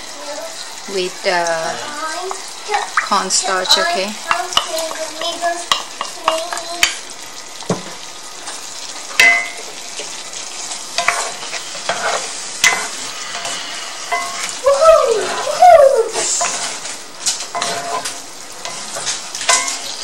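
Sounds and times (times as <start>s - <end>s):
food sizzling in a skillet: 0.0s - 20.0s
utensils knocking against pan: 9.2s - 9.7s, 11.0s - 14.6s, 16.4s - 20.0s
utensils scraping through food: 10.0s - 20.0s.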